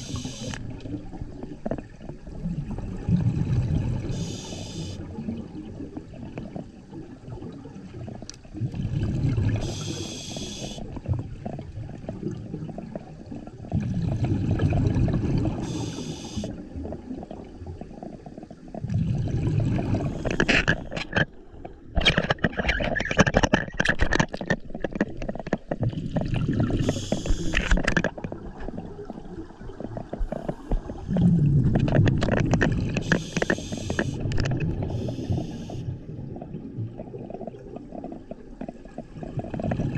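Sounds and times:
regulator hissing inhalations: 0:00.0 - 0:00.6, 0:04.2 - 0:05.0, 0:09.6 - 0:10.8, 0:15.6 - 0:16.6, 0:26.8 - 0:27.6, 0:33.0 - 0:34.2, 0:34.9 - 0:35.9
crackling clicking bubbles: 0:00.0 - 0:39.9
bubbling exhalations: 0:17.0 - 0:21.2.

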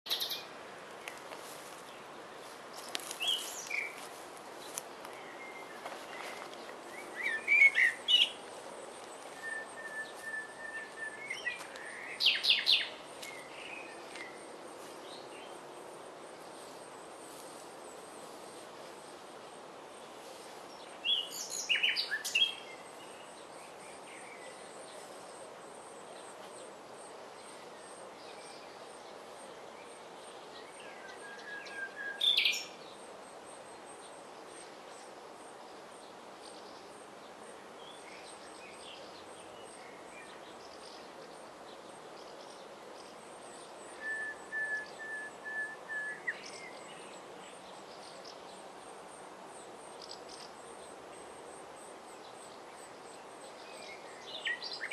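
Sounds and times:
nightingale singing: 0:00.1 - 0:00.5, 0:02.8 - 0:15.6, 0:20.8 - 0:24.9, 0:29.8 - 0:32.8, 0:42.2 - 0:48.5, 0:53.5 - 0:54.9.

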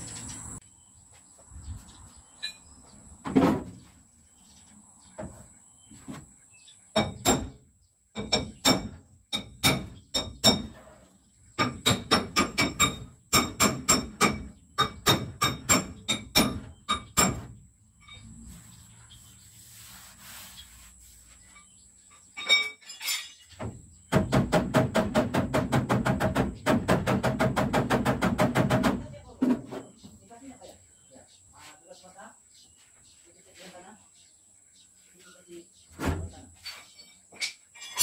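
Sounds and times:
scattered knocks: 0:23.6 - 0:29.9.

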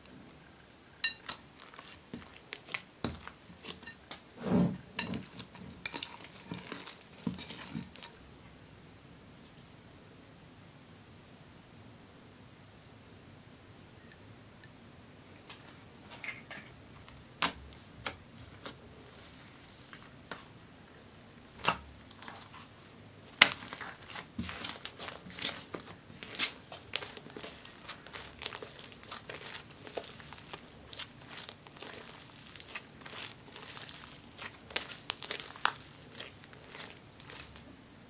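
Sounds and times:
sticky slime popping and crackling: 0:01.2 - 0:03.9, 0:05.1 - 0:08.1, 0:23.3 - 0:37.6.

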